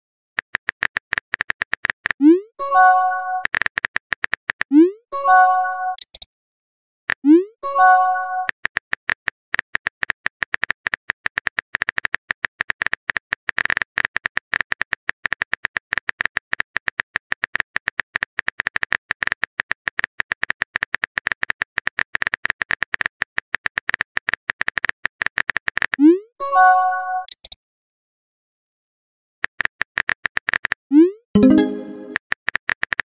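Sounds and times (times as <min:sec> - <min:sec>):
phone keyboard typing clicks: 0:27.2 - 0:27.6.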